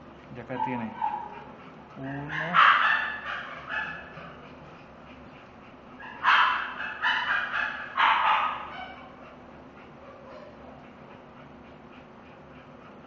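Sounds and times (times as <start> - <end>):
dog high-pitched cries: 2.0 - 4.4, 6.0 - 9.2.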